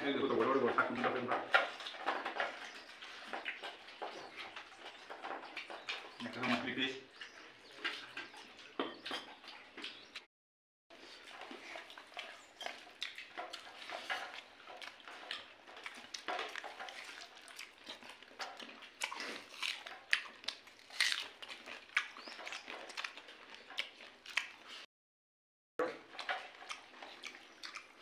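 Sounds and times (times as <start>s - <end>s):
chewing and mouth clicks: 11.0s - 24.9s, 26.0s - 28.0s.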